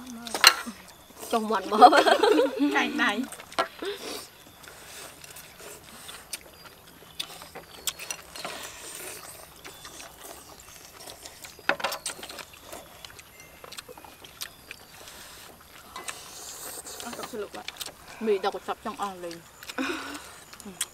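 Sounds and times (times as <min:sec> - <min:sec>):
people slurping noodles: 0:00.0 - 0:11.6, 0:14.9 - 0:20.9
chopsticks clicking on bowls: 0:04.6 - 0:20.9.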